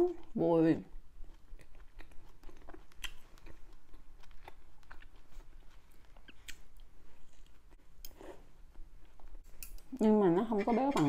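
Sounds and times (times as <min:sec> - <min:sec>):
close-miked chewing: 0:00.2 - 0:09.9.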